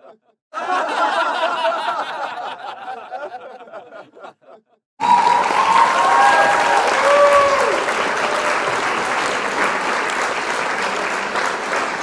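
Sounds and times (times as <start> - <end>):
audience laughter: 0.0 - 4.8
audience whooping: 5.0 - 12.0
loud applause: 5.0 - 12.0.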